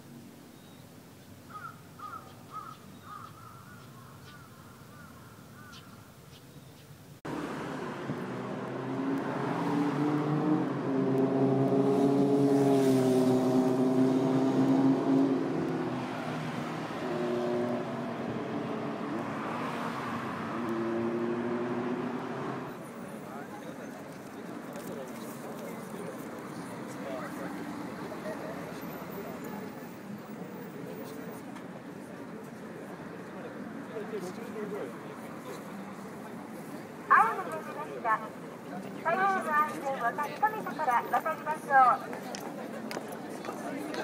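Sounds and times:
crow cawing: 1.5s - 6.0s
cars passing: 7.3s - 44.0s
vehicle engines droning: 7.3s - 44.0s.

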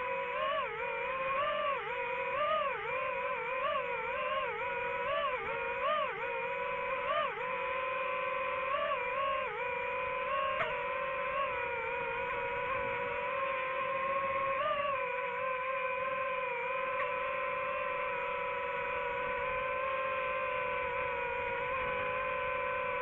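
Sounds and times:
small motor buzzing: 0.0s - 23.0s.

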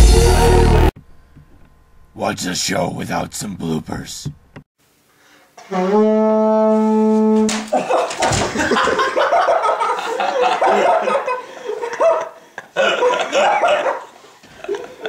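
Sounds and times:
person falling to the floor: 7.4s - 9.0s
hearty human laughter: 7.7s - 15.0s.

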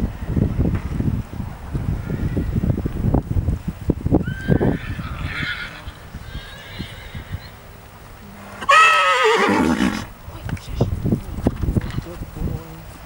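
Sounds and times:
horse whinnying: 4.2s - 7.6s, 8.3s - 10.1s.

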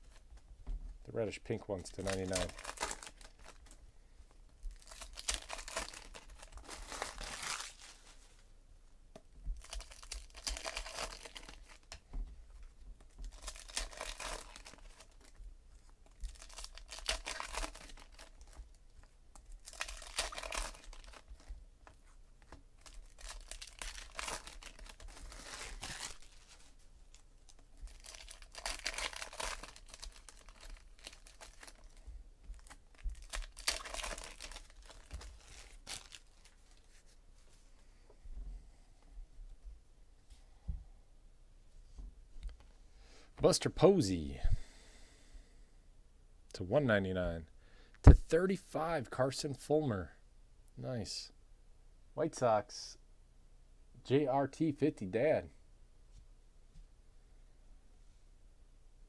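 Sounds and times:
cards being handled: 1.7s - 3.8s, 19.7s - 26.8s
wrappers tearing and crinkling: 1.8s - 3.8s, 4.6s - 8.2s, 9.6s - 12.0s, 13.2s - 15.4s, 16.0s - 18.7s, 19.4s - 21.5s, 22.8s - 36.9s.

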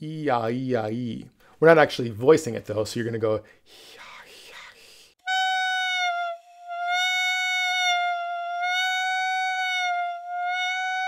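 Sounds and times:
buzzy high clarinet note: 5.2s - 11.0s.

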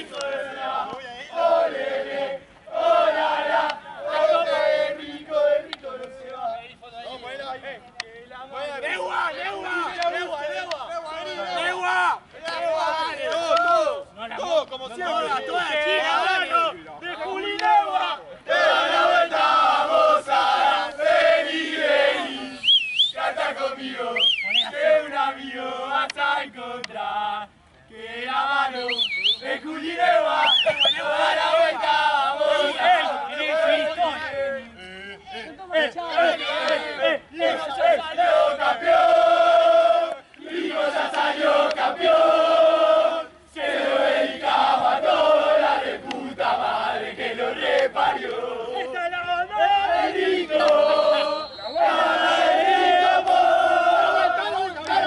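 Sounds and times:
men chanting together: 0.0s - 6.6s, 8.5s - 14.0s, 15.0s - 22.6s, 23.2s - 55.0s
shrill whistle: 22.5s - 23.3s, 24.1s - 24.8s, 28.7s - 29.6s, 30.4s - 31.1s, 50.6s - 52.2s.

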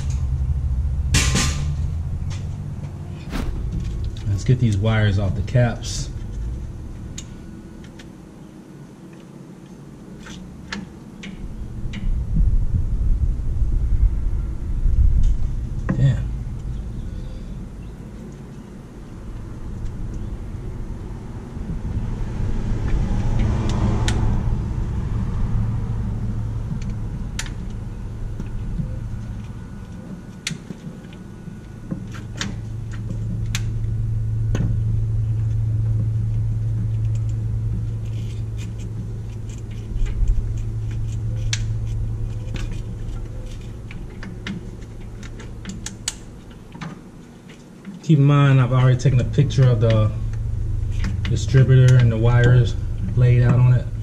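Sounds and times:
low engine-like rumble: 0.0s - 54.0s.

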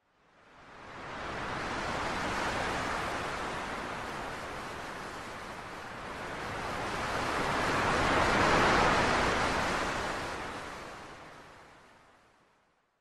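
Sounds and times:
ocean waves rushing: 2.1s - 10.8s.

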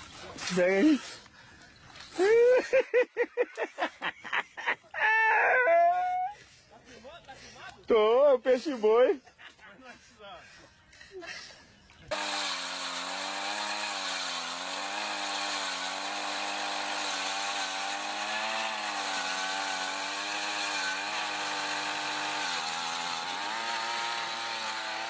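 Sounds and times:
ice auger engine drilling: 12.1s - 25.0s.

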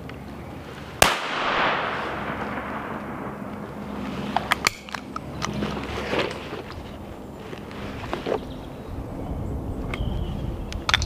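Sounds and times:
shotgun blast echoing: 1.0s - 4.1s.

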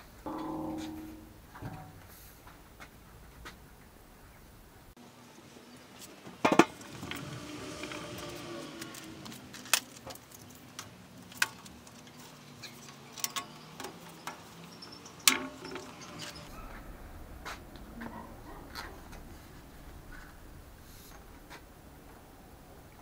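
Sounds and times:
metal drum ringing: 0.0s - 2.1s, 15.4s - 22.9s.

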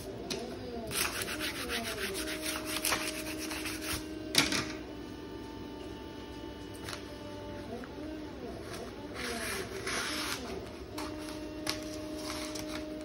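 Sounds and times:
rubbing strokes over tape: 0.9s - 4.1s.

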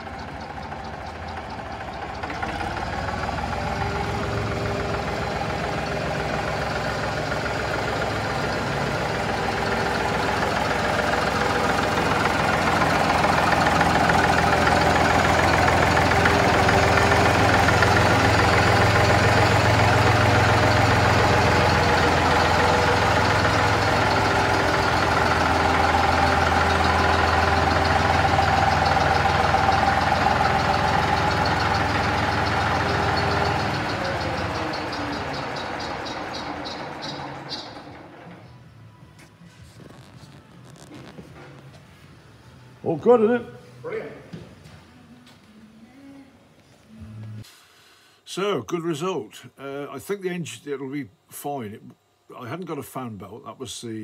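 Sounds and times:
tractor engine running: 0.0s - 43.0s.

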